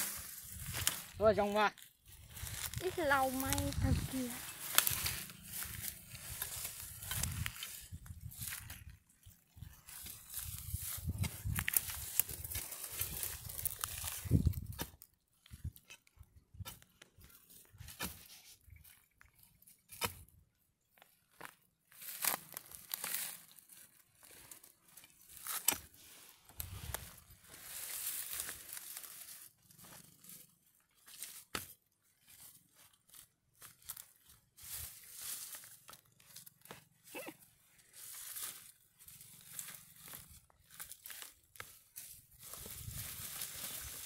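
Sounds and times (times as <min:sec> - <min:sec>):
roots tearing: 0:00.0 - 0:18.3, 0:21.3 - 0:44.0
soil crunching: 0:00.0 - 0:44.0
digging tool striking stony soil: 0:04.5 - 0:08.7, 0:10.0 - 0:15.0, 0:17.8 - 0:18.3, 0:19.9 - 0:20.3, 0:25.0 - 0:26.0, 0:31.1 - 0:31.8.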